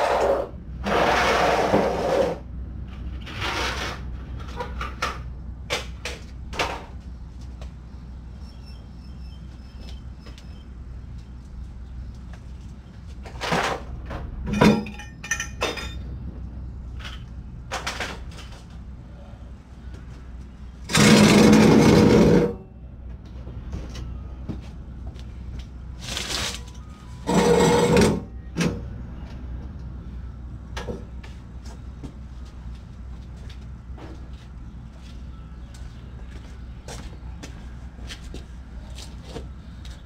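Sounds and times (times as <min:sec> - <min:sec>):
metal exhaust pipe scraping pavement: 0:00.0 - 0:04.5, 0:20.9 - 0:22.6, 0:27.2 - 0:28.3.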